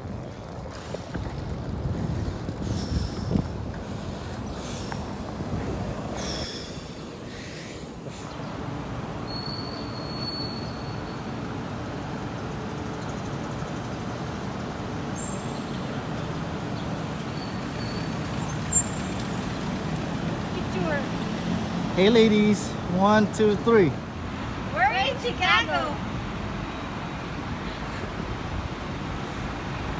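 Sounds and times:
wind on microphone: 0.0s - 8.2s
street traffic passing cars: 0.0s - 29.9s.

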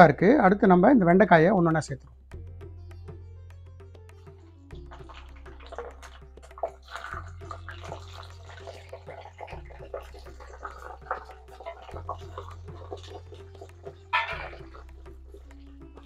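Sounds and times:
soft background music: 0.0s - 16.0s
food deep-frying in oil: 4.8s - 16.0s.

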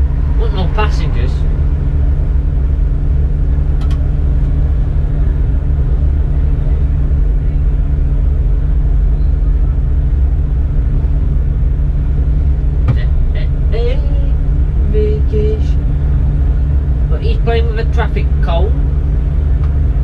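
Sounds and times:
bus engine idling: 0.0s - 20.0s.

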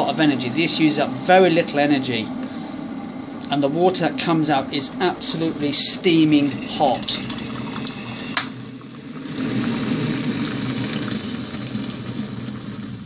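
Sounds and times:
thin high whine: 0.0s - 13.0s
hot water pouring into a mug: 3.9s - 13.0s.

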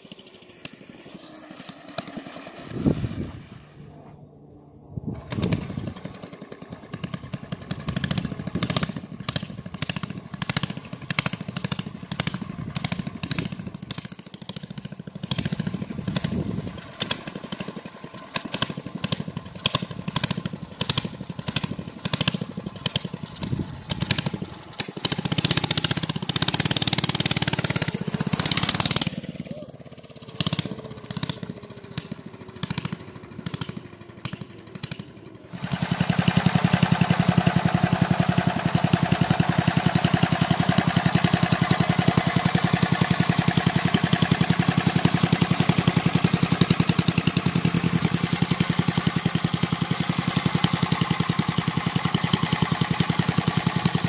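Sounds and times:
engine idling close by: 0.0s - 54.0s
mini bike engine passing: 0.0s - 54.0s.

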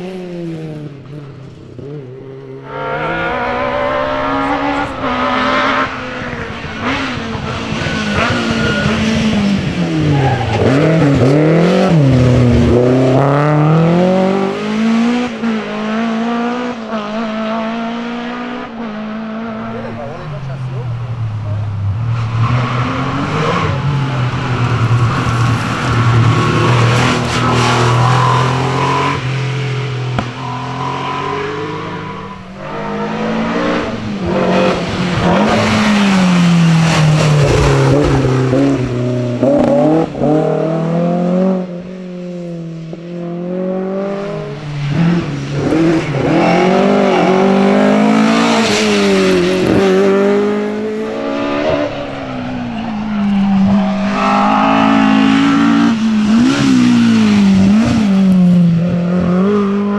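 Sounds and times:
rally cars passing at full throttle: 0.0s - 59.9s.

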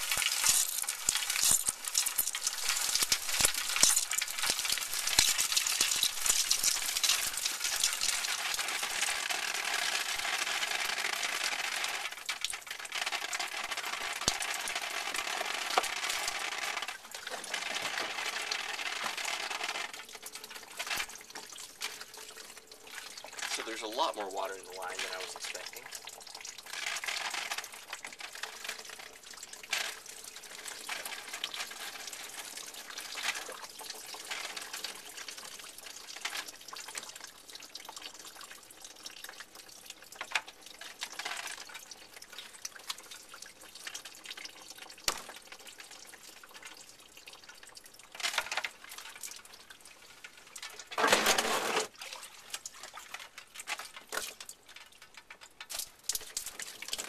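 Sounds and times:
water draining from a pipe: 0.0s - 57.0s
water gushing: 0.0s - 57.0s.

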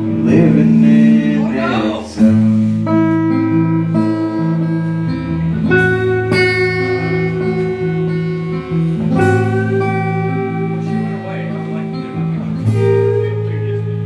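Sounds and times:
acoustic guitar strumming: 0.0s - 14.0s
drums: 0.0s - 14.0s.

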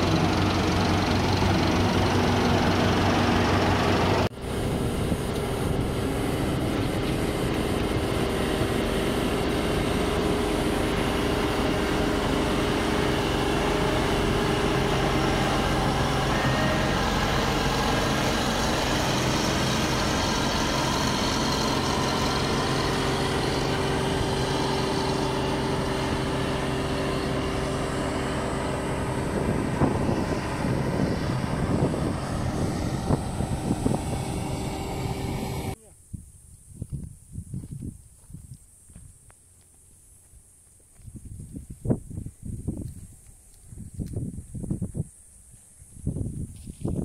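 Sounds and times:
diesel engine running: 0.0s - 35.8s.

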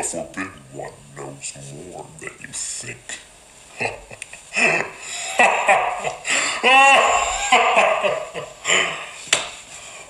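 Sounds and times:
man laughing: 3.7s - 9.1s
high swooping cry: 5.7s - 8.2s.

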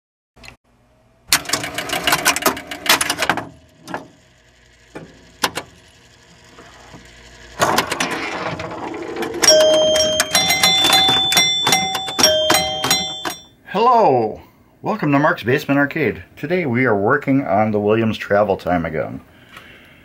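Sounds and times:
pinball machine relays clacking: 1.3s - 4.2s, 7.6s - 13.5s.

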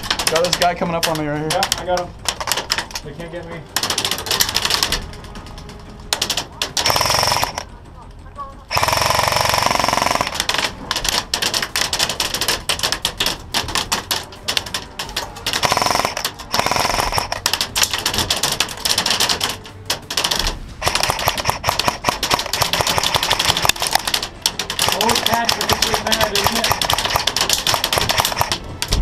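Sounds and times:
airsoft guns firing: 6.1s - 7.7s, 8.7s - 14.8s, 15.4s - 28.7s.

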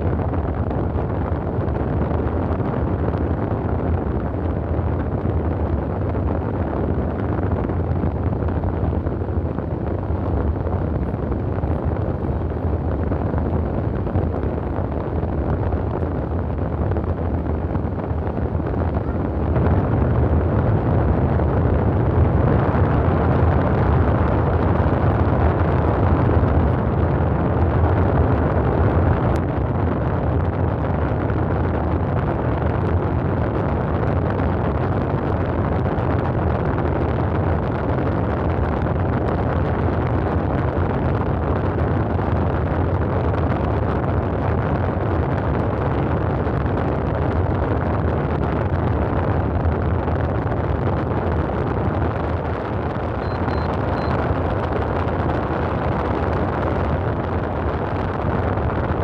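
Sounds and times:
highway traffic rush: 9.7s - 29.5s
faint short beeps: 53.2s - 54.2s.

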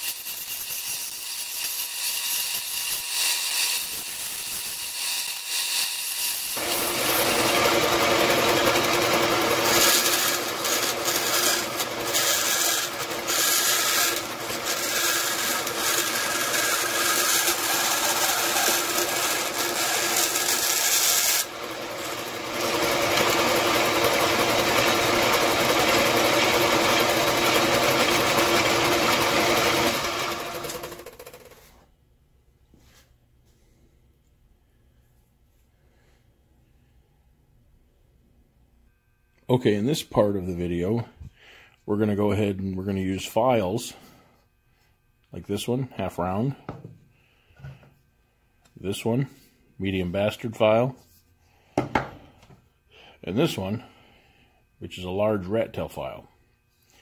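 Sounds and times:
band saw cutting metal: 0.0s - 31.5s.

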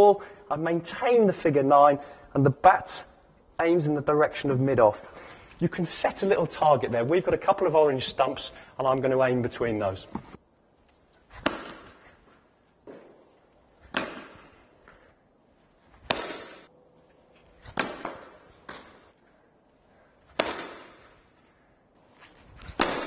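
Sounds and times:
cricket bat striking tennis balls: 11.3s - 15.2s, 15.9s - 16.7s, 17.6s - 19.2s, 20.2s - 21.5s, 22.6s - 23.0s.

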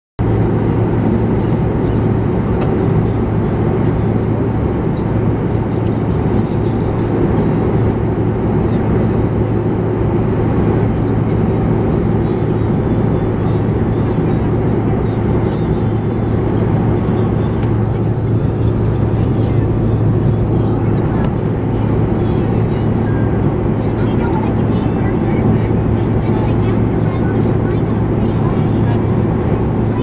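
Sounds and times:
constant low hum: 0.2s - 30.0s
jet engines and airflow rushing: 0.2s - 30.0s.

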